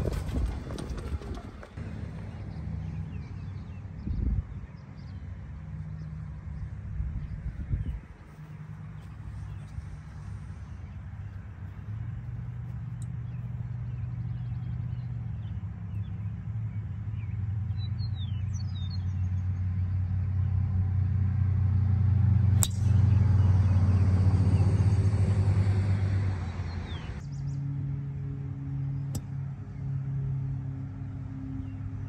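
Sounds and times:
golf cart motor humming: 0:00.0 - 0:02.6, 0:22.0 - 0:27.3.

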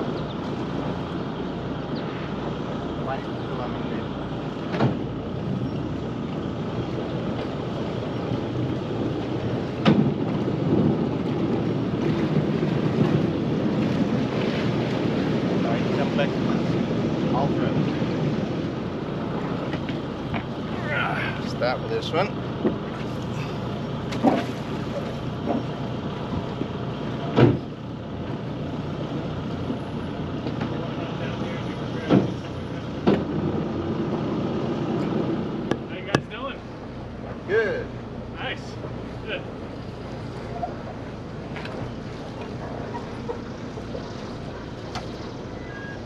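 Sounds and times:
wind rumbling on microphone: 0:00.0 - 0:46.0
dull thumps on boat deck: 0:04.7 - 0:05.1, 0:09.7 - 0:11.4, 0:24.1 - 0:27.8, 0:32.0 - 0:33.5.

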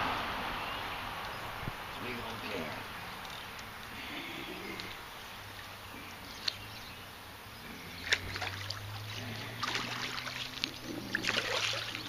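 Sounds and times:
water splashing: 0:04.7 - 0:12.0.

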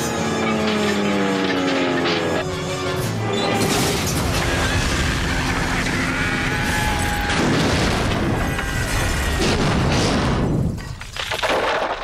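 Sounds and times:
rumbling debris: 0:03.6 - 0:12.0
cartoon crash explosion boom: 0:07.3 - 0:08.5.

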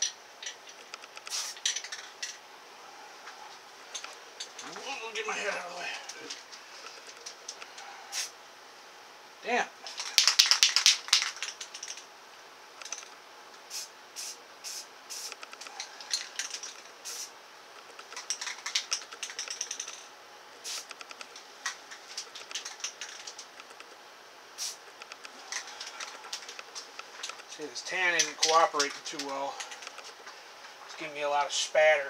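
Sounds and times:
spray paint can hissing and spitting: 0:01.2 - 0:02.1, 0:08.1 - 0:08.3, 0:09.9 - 0:12.0, 0:13.7 - 0:15.5, 0:16.1 - 0:17.3, 0:18.1 - 0:20.0, 0:20.6 - 0:21.1, 0:22.1 - 0:23.5, 0:24.6 - 0:24.8.

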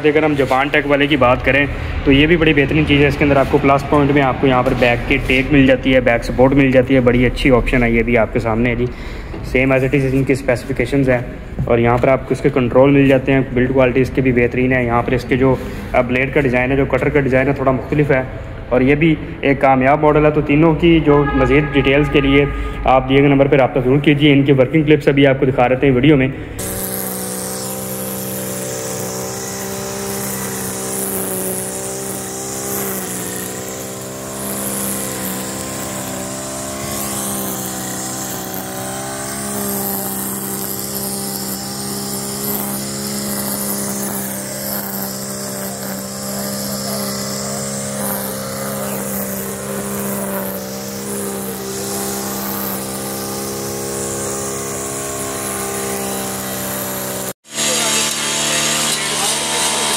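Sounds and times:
brush cutter engine cutting grass: 0:00.0 - 0:08.2, 0:26.5 - 0:59.9.

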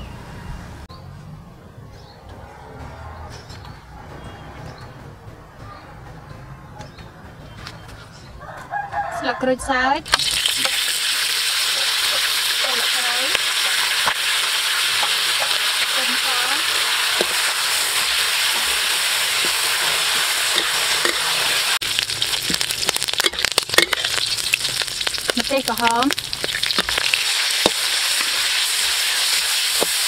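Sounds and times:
hot oil sizzling in a wok: 0:10.1 - 0:30.0
metal spatula scraping wok: 0:10.1 - 0:30.0.

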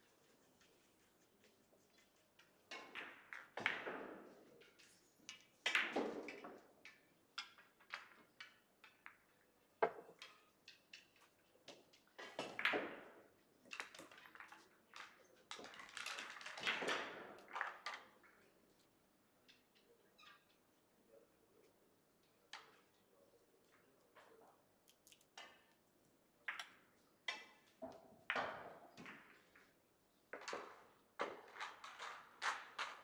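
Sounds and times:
billiard balls clacking together: 0:07.4 - 0:11.2.

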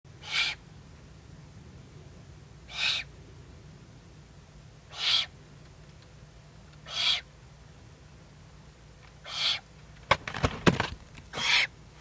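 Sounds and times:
owlet raspy hissing calls: 0:00.1 - 0:00.6, 0:02.7 - 0:03.1, 0:04.9 - 0:05.4, 0:06.8 - 0:07.3, 0:09.2 - 0:09.7, 0:11.4 - 0:11.7.

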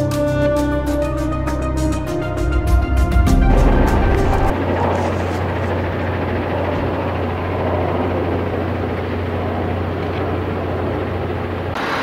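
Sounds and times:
low engine hum: 0:00.5 - 0:12.0
rushing noise: 0:03.1 - 0:05.1, 0:11.8 - 0:12.0.

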